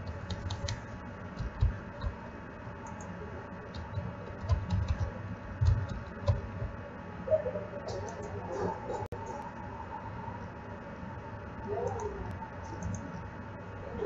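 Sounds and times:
keyboard and mouse clicks: 0.0 - 0.8, 1.4 - 2.2, 3.7 - 6.6.

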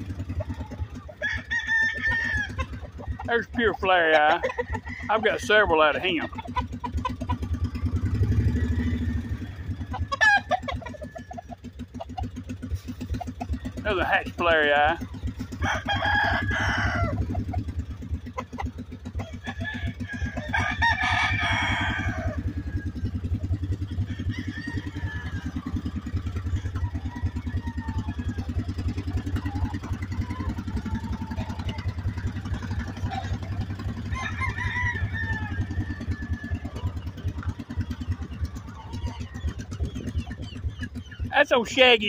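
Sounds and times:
engine idling: 0.0 - 42.0
rooster crowing: 1.1 - 3.5, 4.2 - 6.2, 7.4 - 11.7, 15.4 - 17.8, 19.2 - 40.1
faint bird calls: 35.8 - 41.4.

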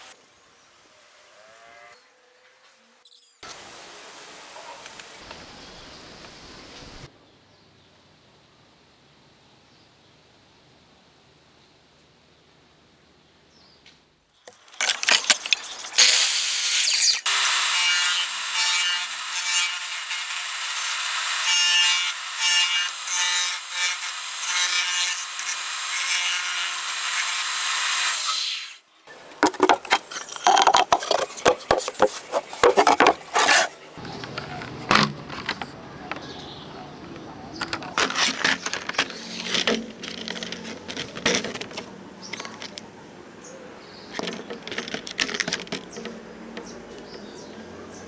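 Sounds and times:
disc sander grinding wood: 16.6 - 28.7.

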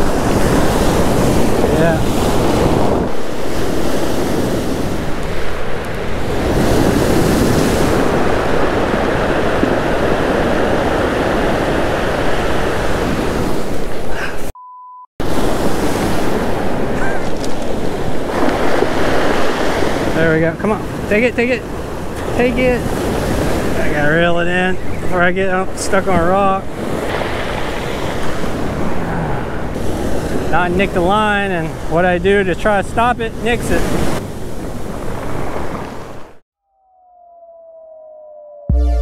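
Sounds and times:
surf breaking on cobble beach: 0.0 - 14.1, 15.2 - 32.5
wind buffeting microphone: 0.0 - 14.1, 15.2 - 36.4
short quiet beep: 14.6 - 15.1.

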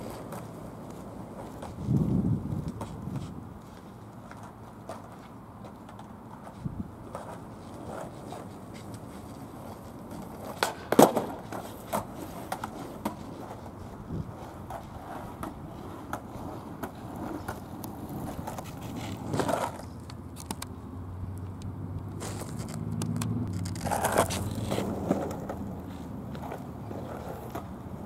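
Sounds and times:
skateboard clacking on asphalt: 0.0 - 28.0
skateboard wheels rolling: 0.0 - 28.0
skateboard wheels knocking and clicking: 4.1 - 20.7, 22.2 - 28.0.

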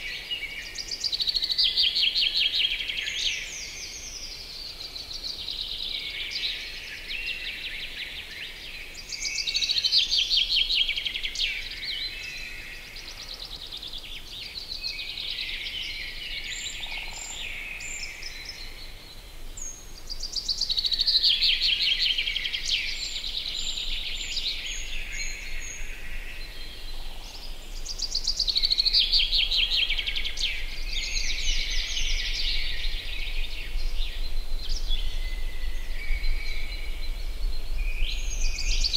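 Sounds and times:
songbirds singing: 0.0 - 38.9.

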